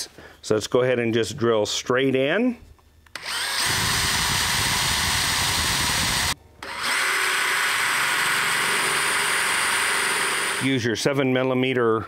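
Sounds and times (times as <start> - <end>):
power drill drilling: 3.2 - 10.8.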